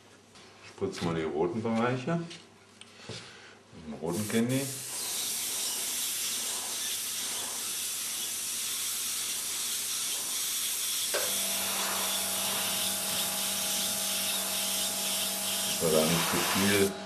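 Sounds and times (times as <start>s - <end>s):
airbrush spraying hiss: 4.1s - 17.0s
low steady hum: 11.2s - 17.0s.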